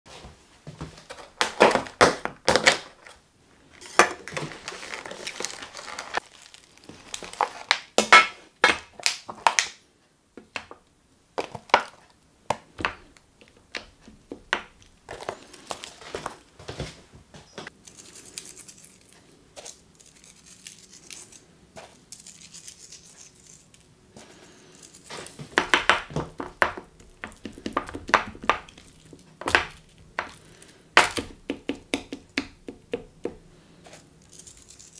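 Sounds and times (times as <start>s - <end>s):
plastic packaging crinkling: 3.8s - 8.3s, 14.8s - 16.6s, 24.7s - 31.4s, 34.0s - 34.9s.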